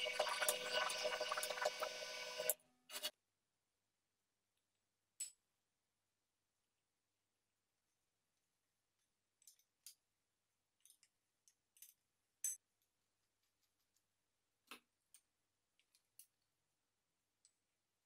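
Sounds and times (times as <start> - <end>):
small metal parts clicking: 9.4 - 10.0, 10.8 - 12.6.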